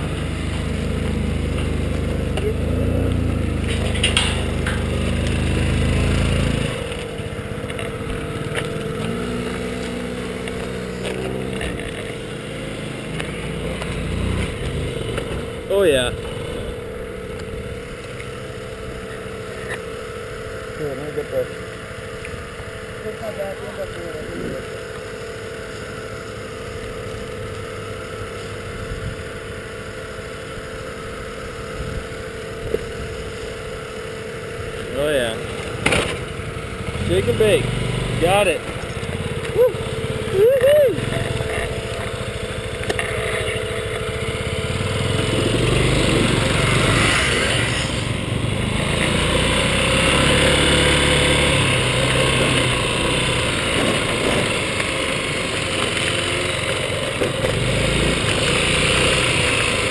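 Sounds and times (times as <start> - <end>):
engine revving: 0.0 - 21.6, 34.6 - 59.9
small engines running: 0.0 - 59.9
steady whine: 0.0 - 59.9.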